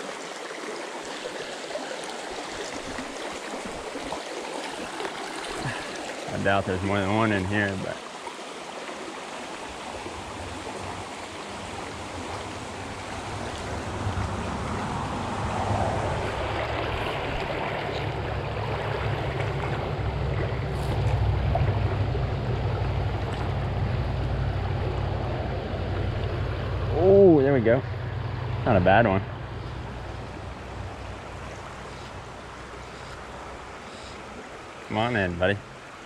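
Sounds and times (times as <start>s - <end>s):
creek water running over rocks: 0.0s - 36.0s.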